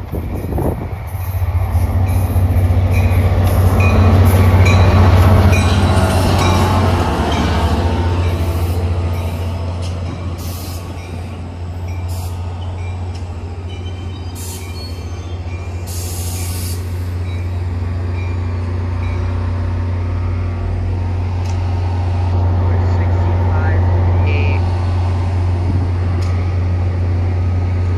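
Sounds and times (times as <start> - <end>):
low locomotive hum: 0.0 - 27.9
train coaches rolling past: 0.0 - 27.9.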